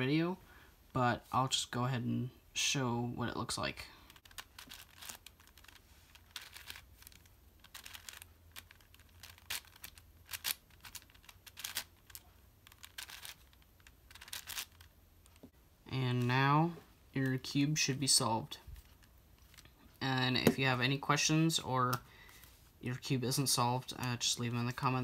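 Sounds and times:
puzzle cube clicking: 0:04.1 - 0:15.5.

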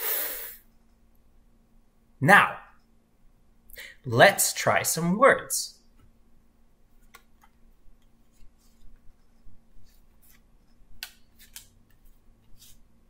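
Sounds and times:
cards scraping and clicking: 0:09.8 - 0:12.9.

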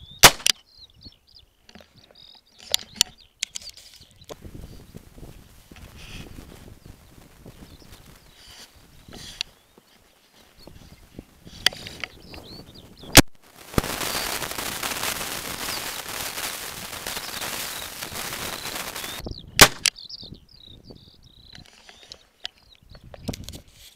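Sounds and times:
small birds chirping: 0:00.0 - 0:23.9
shotgun shots: 0:00.2 - 0:00.5, 0:19.6 - 0:19.9.

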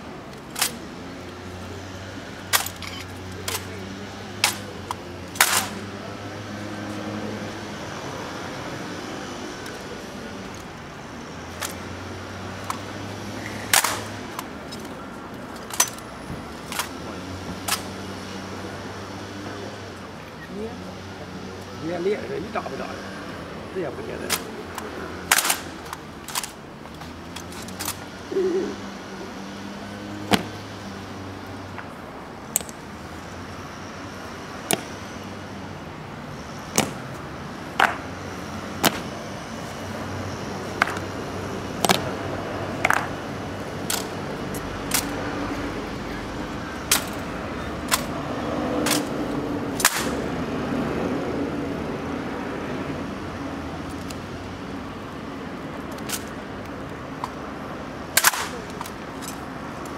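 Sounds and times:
rifles slapped and caught: 0:04.4 - 0:04.7, 0:05.4 - 0:05.8, 0:13.7 - 0:14.9, 0:25.3 - 0:26.6, 0:30.3 - 0:30.6, 0:34.7 - 0:34.9, 0:36.7 - 0:37.0, 0:37.8 - 0:38.0, 0:38.8 - 0:39.1, 0:40.8 - 0:41.0, 0:41.8 - 0:42.1, 0:42.8 - 0:43.1, 0:43.9 - 0:44.1, 0:46.9 - 0:47.2, 0:48.8 - 0:49.1, 0:49.8 - 0:50.2, 0:58.2 - 0:59.4
boot heels striking: 0:30.3 - 0:30.6.

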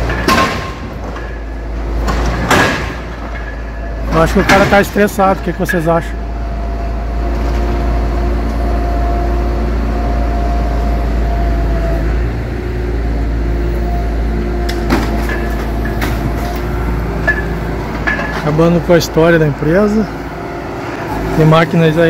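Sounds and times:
sharp knocks: 0:00.0 - 0:01.4, 0:02.0 - 0:03.6, 0:04.3 - 0:05.1
hydraulic hum: 0:00.0 - 0:22.0
truck engine rumble: 0:00.0 - 0:22.0.

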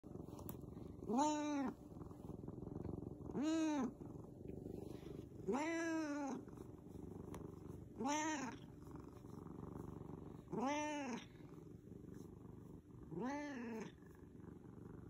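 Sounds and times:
cat purring: 0:00.0 - 0:15.0
cat meowing: 0:08.0 - 0:08.6, 0:10.6 - 0:11.3.

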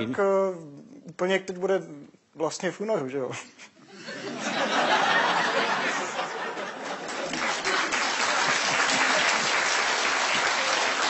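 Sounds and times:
audience laughing: 0:03.9 - 0:09.6
audience applauding: 0:05.3 - 0:11.0.

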